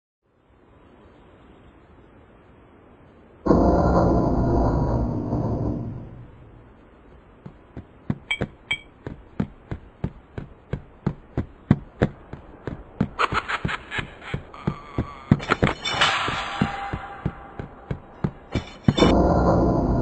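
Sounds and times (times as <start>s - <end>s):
rush of noise: 0.6s - 20.0s
cartoon footsteps: 6.7s - 19.2s.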